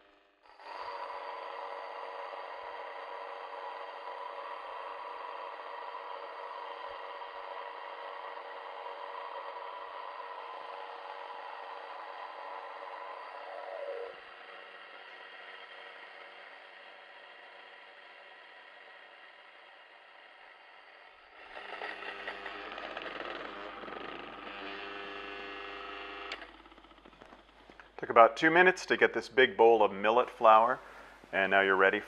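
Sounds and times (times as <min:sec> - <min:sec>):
grain mill grinding: 0:00.0 - 0:28.0.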